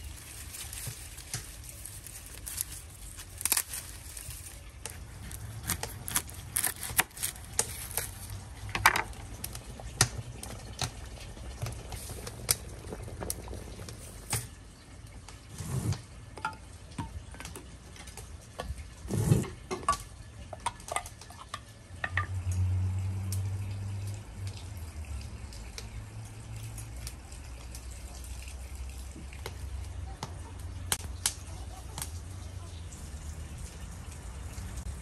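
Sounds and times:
brine liquid sloshing: 0:00.0 - 0:22.2.

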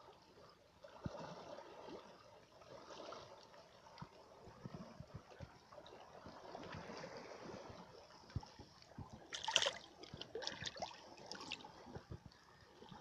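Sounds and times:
water lapping over rock: 0:00.1 - 0:13.0
water splashing: 0:02.7 - 0:13.0.

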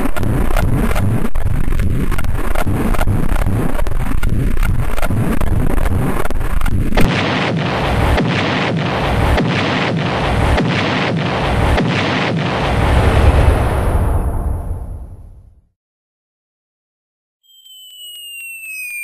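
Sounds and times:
loud pulsing rumble: 0:00.0 - 0:15.6
huge explosion blast: 0:07.0 - 0:15.6.

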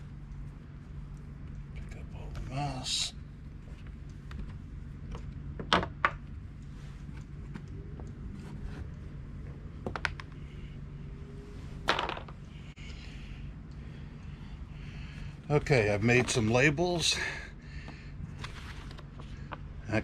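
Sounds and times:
steady low hum: 0:00.0 - 0:20.0
clicks and rustles of paper: 0:18.4 - 0:19.7.

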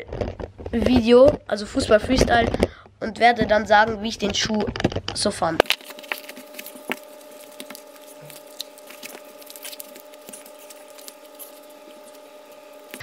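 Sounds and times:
faint steady hum: 0:00.0 - 0:13.0
shoelaces rustling and clicking: 0:04.2 - 0:13.0.

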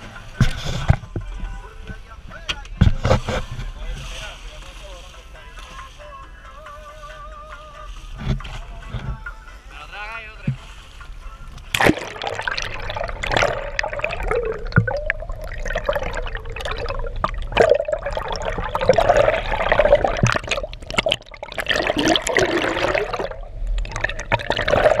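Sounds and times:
muffled water churning and gurgling: 0:00.0 - 0:04.6, 0:11.1 - 0:25.0
small water splashes: 0:11.7 - 0:25.0.

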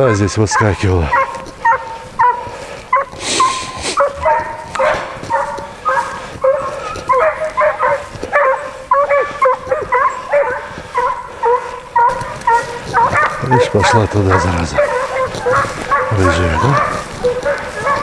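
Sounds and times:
hounds baying and yelping: 0:00.0 - 0:18.0.

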